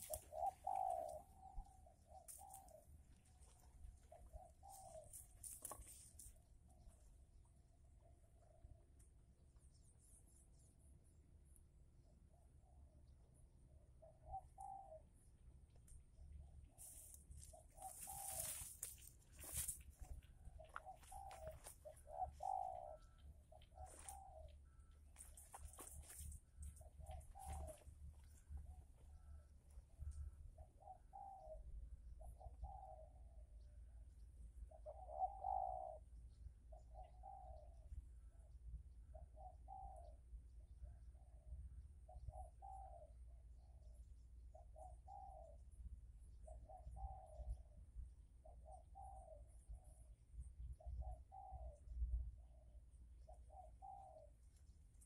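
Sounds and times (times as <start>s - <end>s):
dove cooing: 0.0s - 6.0s, 14.0s - 15.1s, 16.8s - 33.6s, 34.7s - 38.4s, 39.1s - 40.2s, 40.8s - 43.9s, 44.5s - 45.6s, 46.4s - 47.8s, 48.4s - 50.0s, 50.7s - 54.5s.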